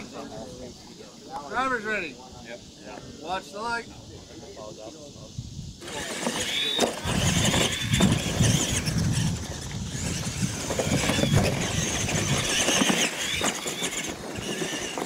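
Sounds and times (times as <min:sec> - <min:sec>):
rc truck motor whine: 0:05.8 - 0:15.0.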